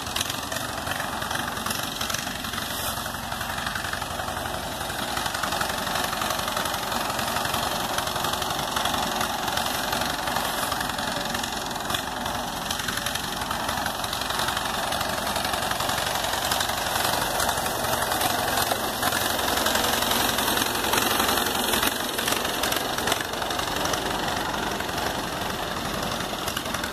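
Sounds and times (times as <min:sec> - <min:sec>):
tractor engine running: 0:00.0 - 0:26.9.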